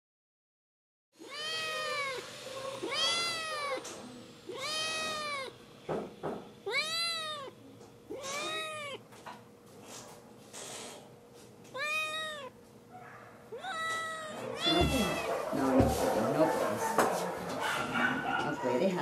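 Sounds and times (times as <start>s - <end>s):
kitten meowing: 1.2s - 5.6s, 6.6s - 9.0s, 11.7s - 12.6s, 13.5s - 15.7s.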